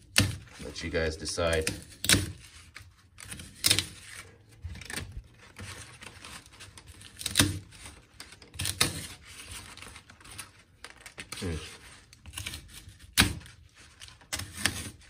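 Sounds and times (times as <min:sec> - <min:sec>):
tape peeled and torn off: 0:00.0 - 0:15.0
knife slicing through tape: 0:01.6 - 0:02.5, 0:14.3 - 0:15.0.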